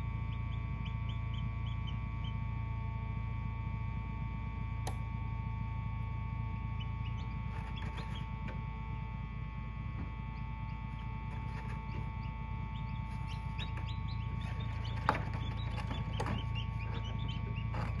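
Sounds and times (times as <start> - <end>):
incubator hum: 0.0 - 18.0
chicks peeping: 0.2 - 2.4, 6.6 - 8.6, 10.3 - 18.0.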